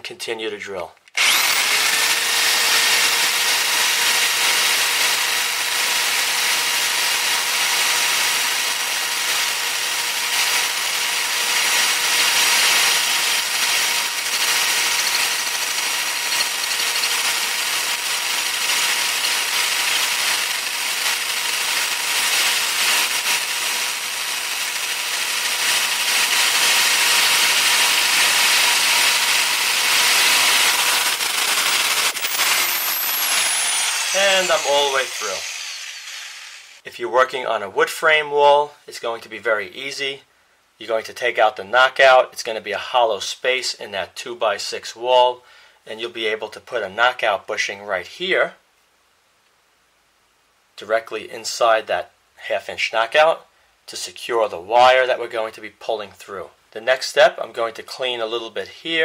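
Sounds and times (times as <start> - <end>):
drill bit scraping concrete: 1.1 - 36.8
electric drill motor whine: 1.2 - 36.8.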